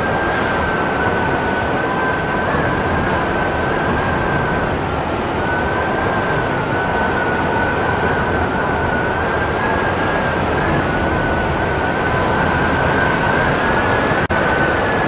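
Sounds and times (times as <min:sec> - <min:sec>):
high wind whistle: 0:00.0 - 0:15.0
strong wind rushing: 0:00.0 - 0:15.0.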